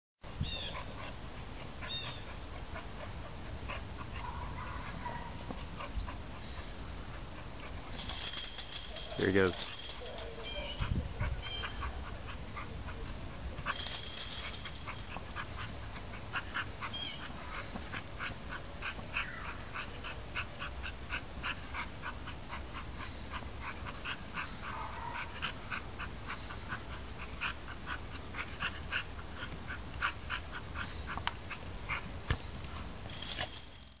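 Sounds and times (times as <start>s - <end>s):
steady low hum: 0.2s - 34.0s
small dog yipping: 10.0s - 11.9s.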